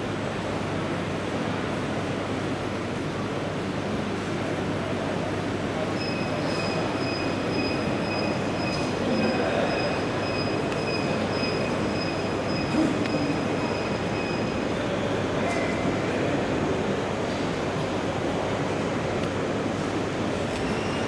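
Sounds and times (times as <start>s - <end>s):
printing machine running: 3.6s - 21.0s
thin high whine: 4.6s - 21.0s.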